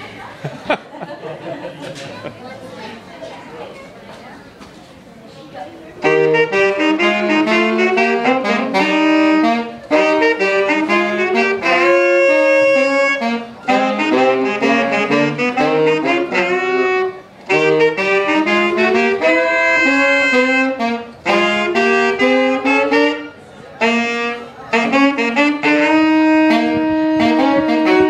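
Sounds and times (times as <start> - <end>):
saxophones playing jazz: 5.9 - 28.0.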